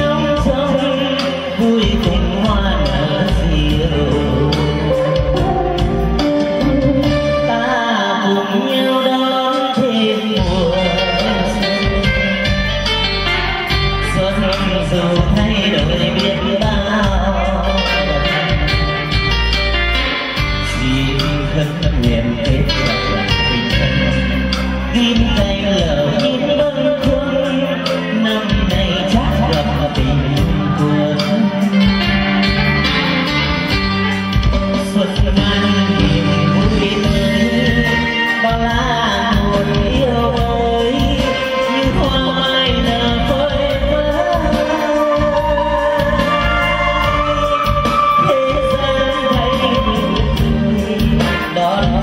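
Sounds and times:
amplified backing track with bass: 0.0 - 52.0
man singing into a microphone: 0.0 - 52.0
plucked guitar over steady beat: 0.0 - 52.0.

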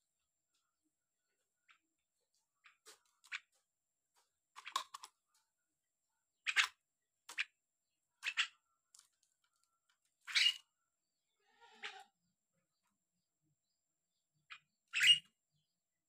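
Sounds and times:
bird harsh chattering calls: 10.3 - 10.6.

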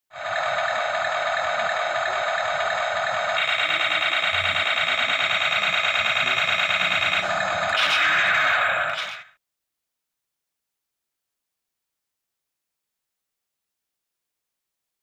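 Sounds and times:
toy electronic sound effects: 0.2 - 9.4.

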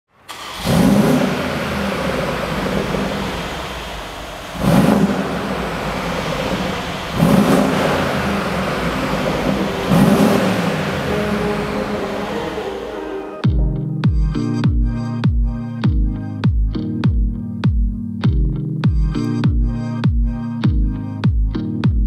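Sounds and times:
car engine idling: 0.1 - 13.4
engine revving: 0.1 - 13.4.

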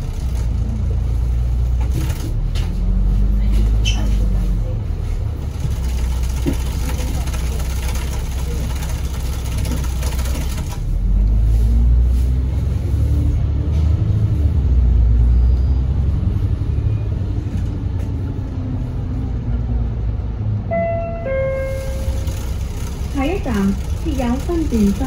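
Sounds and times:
bus diesel engine rumbling: 0.0 - 25.0
two-note descending chime: 20.7 - 22.2.

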